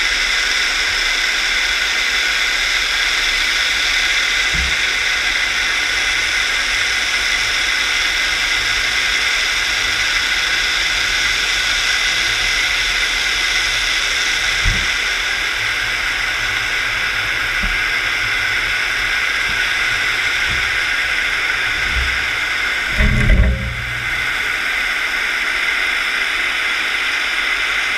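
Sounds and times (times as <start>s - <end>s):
underwater rushing water hiss: 0.0s - 27.9s
dull knocks: 4.5s - 5.0s, 14.6s - 15.2s, 17.6s - 18.2s, 19.4s - 24.4s
low rumble: 13.8s - 24.8s.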